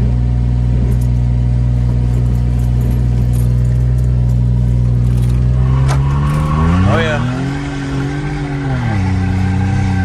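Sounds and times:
car engine revving high: 0:04.6 - 0:10.0.

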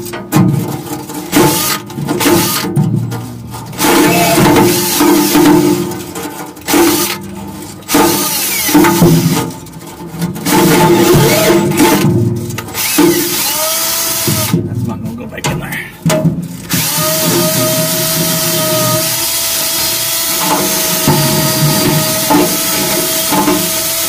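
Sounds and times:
wire brush scratching metal: 0:00.0 - 0:15.4, 0:16.0 - 0:24.0
drill motor whine: 0:03.9 - 0:05.0, 0:08.2 - 0:08.8, 0:12.8 - 0:14.5, 0:16.7 - 0:24.0.

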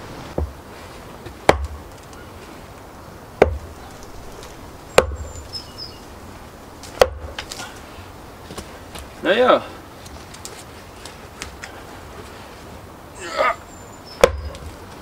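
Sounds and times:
axe splitting log: 0:01.2 - 0:02.0, 0:03.4 - 0:05.4, 0:06.8 - 0:07.6, 0:14.2 - 0:14.7.

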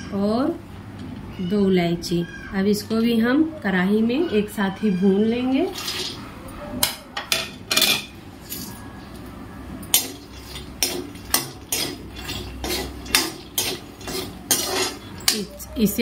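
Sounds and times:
metal ladle scraping a pan: 0:05.7 - 0:06.2, 0:09.9 - 0:16.0.

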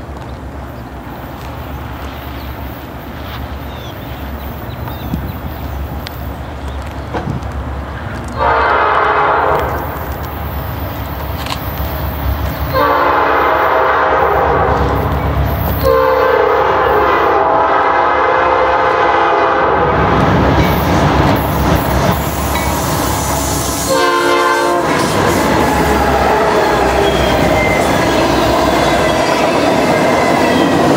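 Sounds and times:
diesel locomotive engine rumbling: 0:00.0 - 0:30.9
locomotive air horn blasts: 0:08.4 - 0:09.9, 0:12.7 - 0:15.0, 0:15.8 - 0:20.2, 0:23.4 - 0:29.4.

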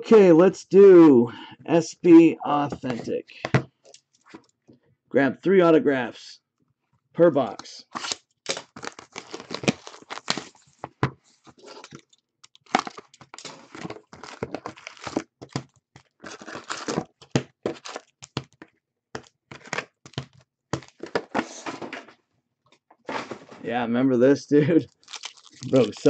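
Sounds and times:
shrink wrap tearing: 0:08.0 - 0:10.7, 0:11.6 - 0:15.2, 0:16.2 - 0:17.0, 0:24.9 - 0:26.0
foil packs crinkling and clacking: 0:08.5 - 0:18.6, 0:19.2 - 0:21.6, 0:24.9 - 0:26.0.

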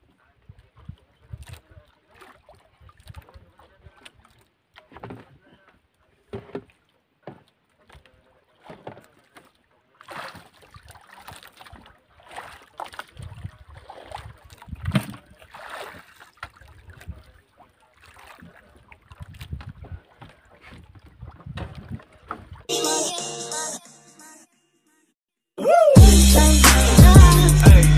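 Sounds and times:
water splashing against boat hull: 0:00.0 - 0:22.7
wind buffeting microphone: 0:13.2 - 0:15.1, 0:19.1 - 0:20.1.

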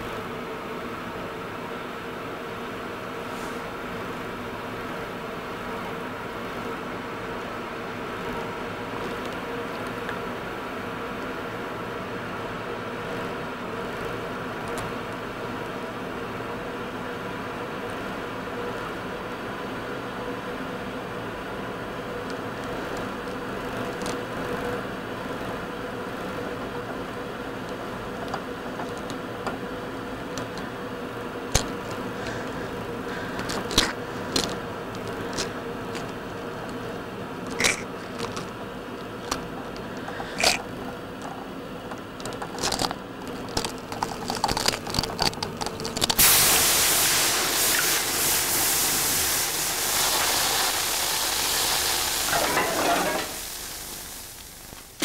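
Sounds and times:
steady hum: 0:00.0 - 0:55.0
water boiling in a pot: 0:04.4 - 0:55.0
milk sizzling on a hotplate: 0:46.2 - 0:55.0.

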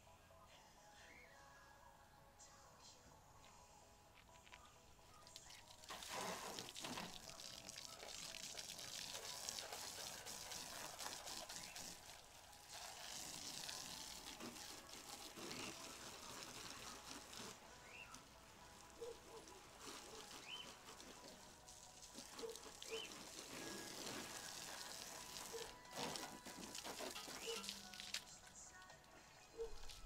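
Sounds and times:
water spraying on car: 0:05.7 - 0:28.4.

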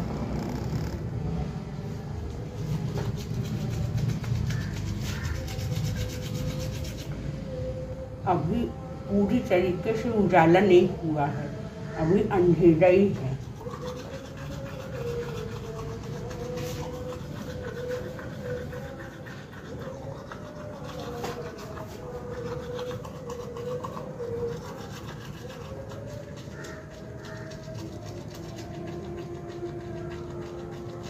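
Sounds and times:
toothbrush scrubbing teeth: 0:02.5 - 0:07.2, 0:13.3 - 0:31.0.

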